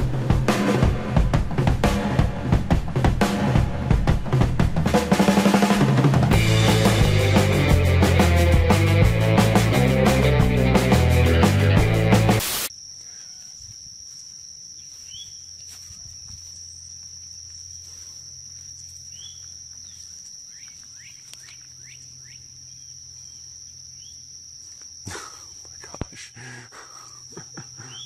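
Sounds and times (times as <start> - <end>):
loud rock music: 0.0 - 12.7
insects droning: 1.1 - 28.0
insect chirps: 12.4 - 28.0.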